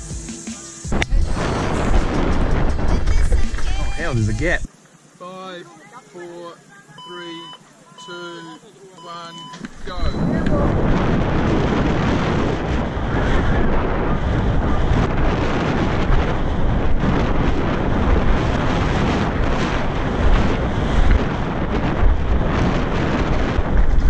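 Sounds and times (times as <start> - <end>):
wind buffeting microphone: 0.9 - 4.7, 9.6 - 24.0
tyre roar on dirt: 9.7 - 24.0.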